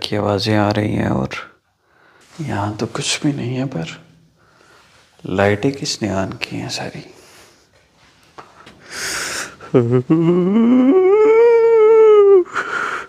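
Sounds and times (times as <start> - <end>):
breathy hiss: 1.8 - 5.4, 6.9 - 9.8
wailing cry: 9.8 - 12.6.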